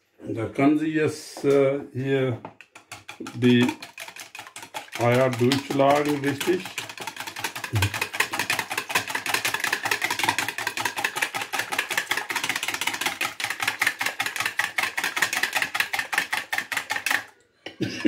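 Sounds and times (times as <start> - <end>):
whisk beating eggs in bowl: 2.5 - 17.3.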